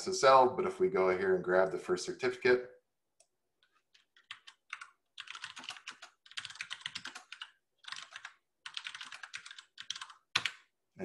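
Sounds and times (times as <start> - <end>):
typing on computer keyboard: 3.6 - 10.6.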